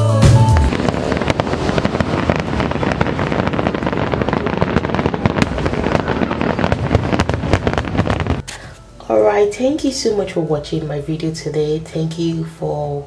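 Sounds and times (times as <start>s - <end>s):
fireworks crackles and bangs: 0.1s - 8.8s.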